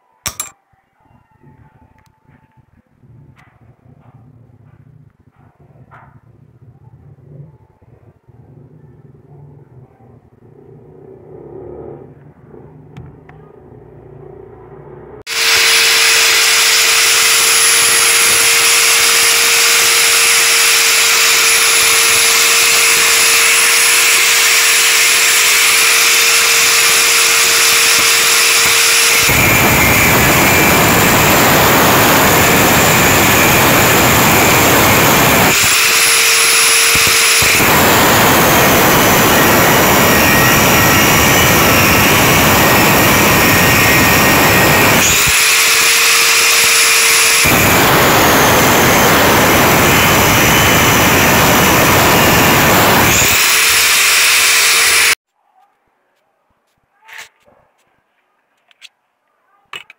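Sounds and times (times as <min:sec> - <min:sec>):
angle grinder grinding steel: 0:00.3 - 0:00.6, 0:15.3 - 0:55.2
angle grinder whining: 0:15.1 - 0:55.2.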